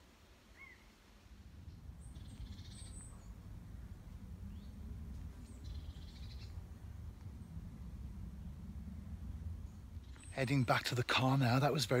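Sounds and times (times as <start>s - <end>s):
steady low rumble: 1.0s - 12.0s
songbird singing trilled phrases: 1.7s - 3.4s, 9.7s - 10.9s.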